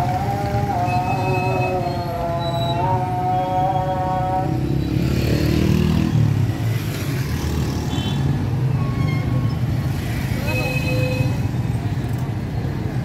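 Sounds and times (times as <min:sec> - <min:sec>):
motorcycle and car engines: 0:00.0 - 0:13.0
engine revving: 0:04.3 - 0:07.7.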